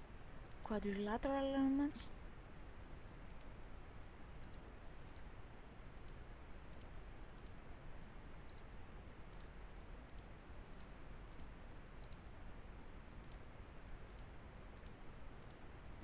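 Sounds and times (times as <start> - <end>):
steady low hiss: 0.0 - 16.0
computer mouse clicks: 3.2 - 3.6, 4.4 - 5.3, 5.9 - 7.6, 8.4 - 8.7, 9.3 - 12.3, 13.2 - 16.0.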